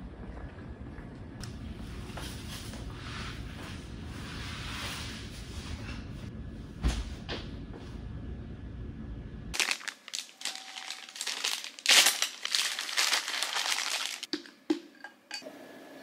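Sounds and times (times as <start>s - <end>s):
low steady rumble: 0.0s - 9.6s
plastic bag crinkling: 9.6s - 14.3s.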